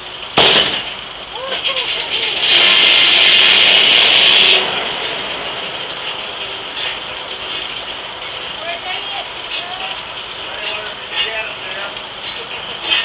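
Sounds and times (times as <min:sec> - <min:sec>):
sawmill running: 0:00.0 - 0:13.0.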